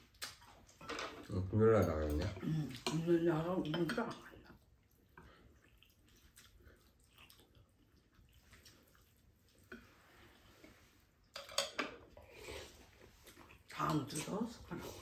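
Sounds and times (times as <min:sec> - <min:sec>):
utensils clinking on ceramic bowls: 0:00.8 - 0:04.4, 0:11.4 - 0:12.0.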